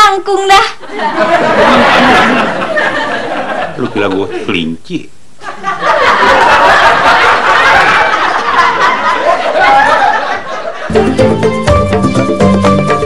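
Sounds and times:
crowd laughing: 0.8s - 4.4s, 5.4s - 11.0s
music: 10.9s - 13.0s.

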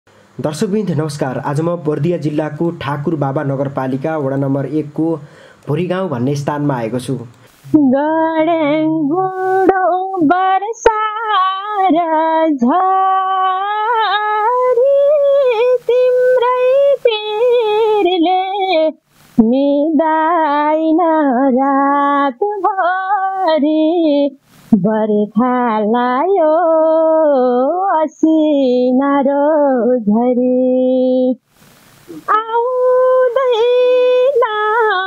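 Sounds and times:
woman singing folk song: 7.5s - 31.4s, 32.1s - 35.0s.

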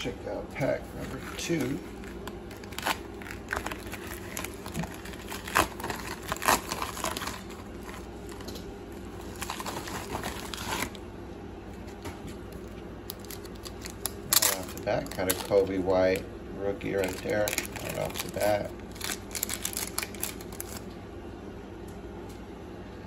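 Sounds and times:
plastic mailer crinkling: 0.9s - 11.0s, 12.5s - 16.2s, 16.9s - 20.9s
sharp plastic crackles: 1.1s - 11.0s, 11.9s - 16.2s, 17.0s - 20.9s.

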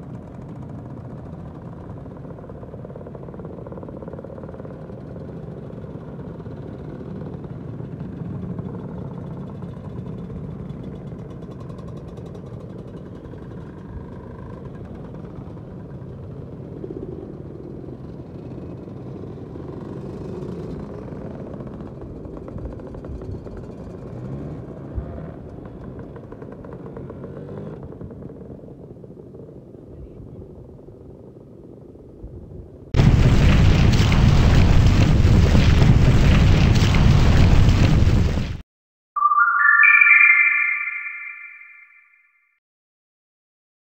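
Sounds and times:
scooters riding past: 18.3s - 29.6s.

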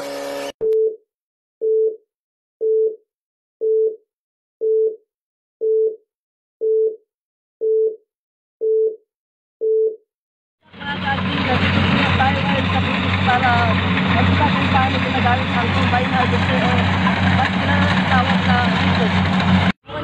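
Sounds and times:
loud engine noise: 10.7s - 20.0s.

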